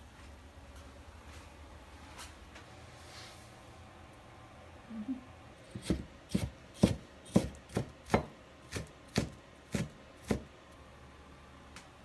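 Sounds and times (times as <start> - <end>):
cleaver chopping on wooden board: 5.8 - 10.5.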